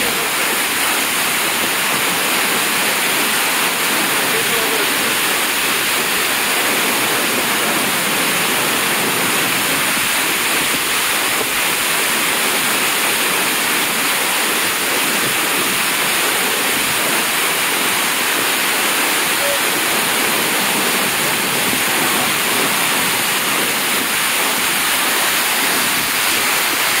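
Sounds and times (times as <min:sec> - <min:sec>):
waterfall rushing: 0:00.0 - 0:27.0.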